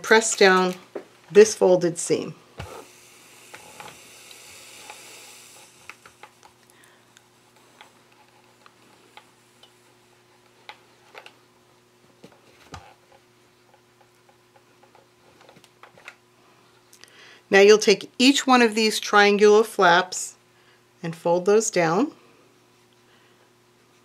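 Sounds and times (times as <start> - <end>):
steam iron hissing: 2.6 - 6.5.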